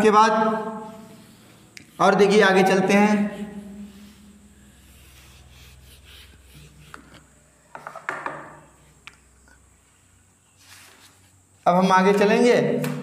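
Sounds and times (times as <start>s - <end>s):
duster rubbing on whiteboard: 0.8s - 8.0s, 10.6s - 11.4s.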